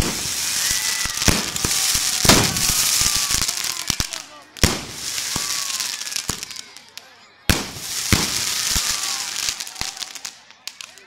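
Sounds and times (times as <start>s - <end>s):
firework bang: 0.0s - 3.3s, 4.6s - 6.4s, 7.5s - 9.9s
hiss of falling sparks: 0.0s - 6.6s, 7.6s - 10.8s
sharp firework cracks: 0.0s - 11.0s.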